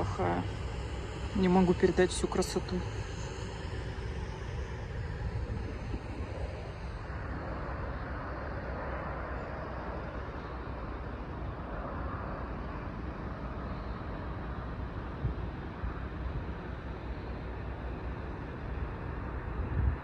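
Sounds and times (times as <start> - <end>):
truck engine drone: 0.0 - 20.0.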